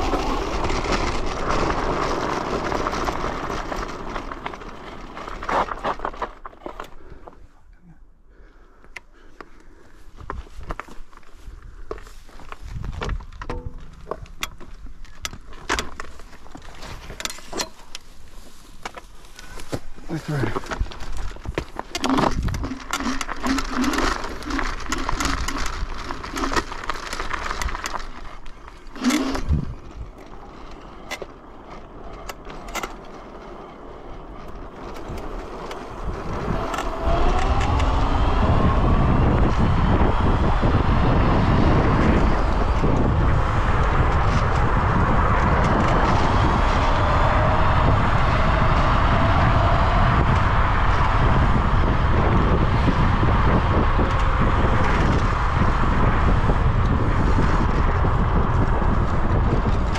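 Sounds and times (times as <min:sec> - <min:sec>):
scooter clicks: 0:00.0 - 0:07.0, 0:12.8 - 0:18.1, 0:20.6 - 0:51.4, 0:52.1 - 0:59.9
wind rushing on microphone: 0:11.4 - 0:15.9, 0:20.1 - 0:28.1, 0:28.9 - 0:59.9
electric scooter motor whine: 0:28.9 - 0:59.9.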